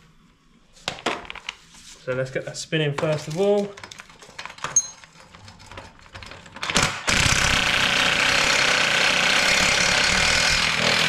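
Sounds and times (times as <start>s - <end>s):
impact wrench running: 6.6s - 11.0s.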